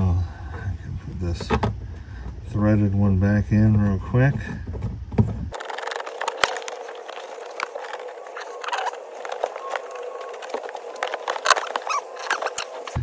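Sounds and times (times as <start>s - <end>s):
plastic fastener scraping and ticking: 4.3s - 13.0s.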